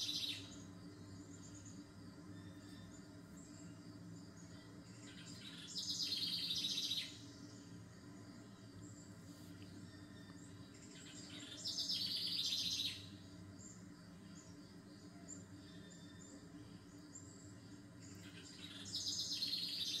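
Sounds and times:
bird chirps: 0:00.0 - 0:07.8, 0:08.5 - 0:14.6, 0:17.1 - 0:20.0
bird buzzing trill: 0:00.0 - 0:20.0.

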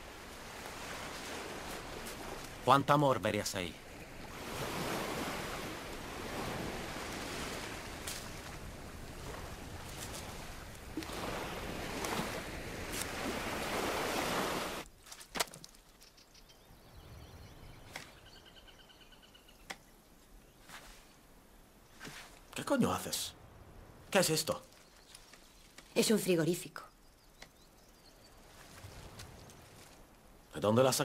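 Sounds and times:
sea surf washing onto beach: 0:00.0 - 0:14.8
faint clicks: 0:27.4 - 0:27.6.

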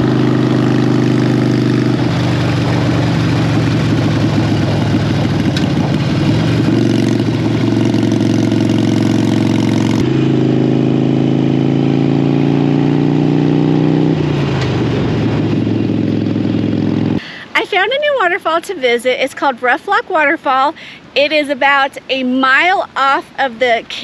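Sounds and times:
motorcycle engine running: 0:00.0 - 0:17.2.

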